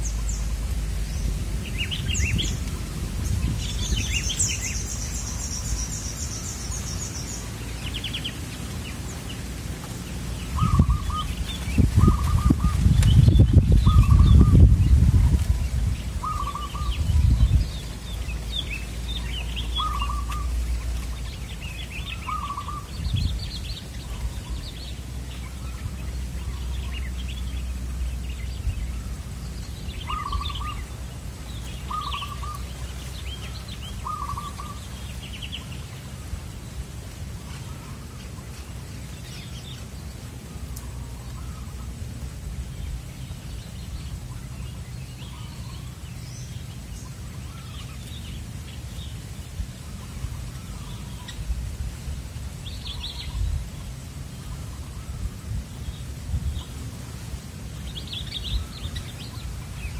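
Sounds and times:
doves cooing in trilled phrases: 0:00.0 - 0:43.5
small birds chirping: 0:00.0 - 0:59.9.

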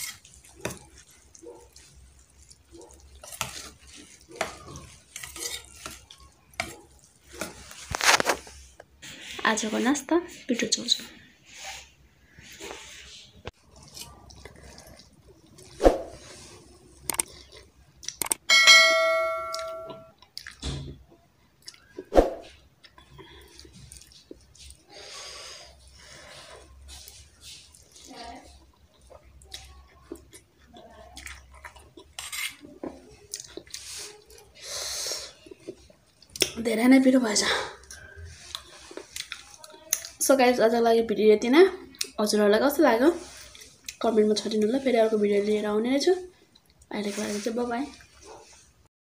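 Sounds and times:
noodles being slurped and chewed: 0:00.0 - 0:09.8, 0:11.5 - 0:18.4, 0:21.6 - 0:40.3, 0:41.8 - 0:48.9
mouth eating sounds: 0:13.6 - 0:15.8, 0:26.7 - 0:36.6.

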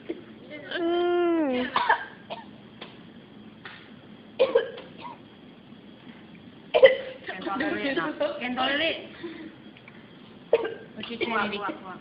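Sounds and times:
person coughing: 0:01.6 - 0:02.5, 0:04.4 - 0:05.2, 0:06.8 - 0:07.4.

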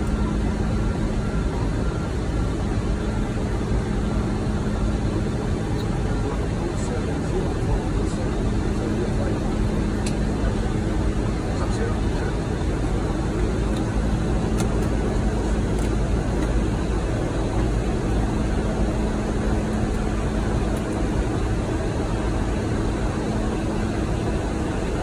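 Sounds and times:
jet engines rumbling: 0:00.0 - 0:25.0.

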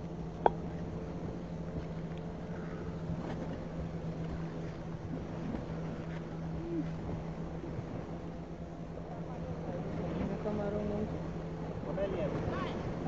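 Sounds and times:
steady engine hum: 0:00.0 - 0:13.0.

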